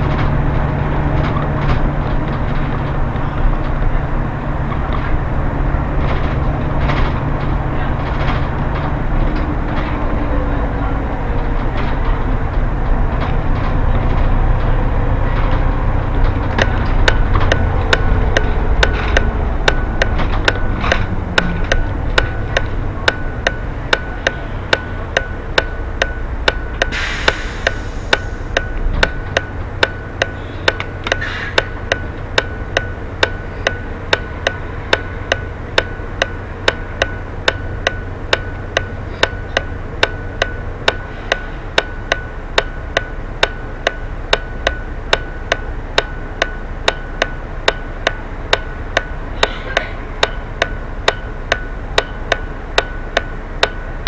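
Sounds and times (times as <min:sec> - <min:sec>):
bus engine idling: 0:00.0 - 0:54.0
turn signal ticking: 0:00.0 - 0:54.0
short air hiss: 0:26.9 - 0:28.4.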